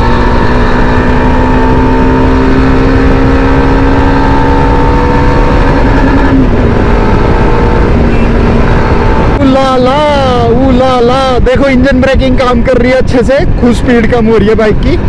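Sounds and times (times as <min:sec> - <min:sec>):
motorcycle engine running: 0:00.0 - 0:10.6
wind rush: 0:00.0 - 0:15.0.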